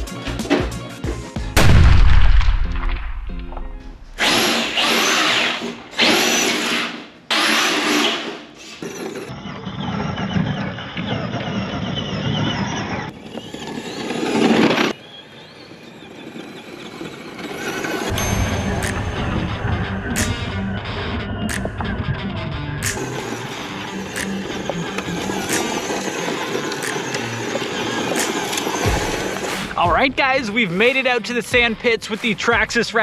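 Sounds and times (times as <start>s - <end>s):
electric motor whining: 21.4s - 29.7s.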